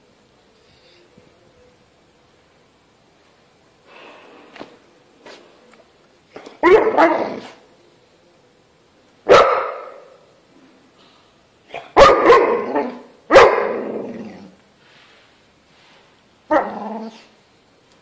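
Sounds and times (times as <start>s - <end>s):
dog barking: 6.6s - 7.6s, 9.3s - 10.2s, 11.7s - 13.9s, 16.5s - 16.8s.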